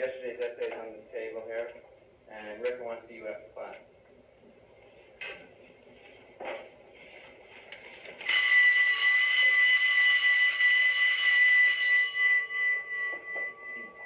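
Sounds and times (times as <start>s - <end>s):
electric school bell ringing: 8.2s - 14.0s.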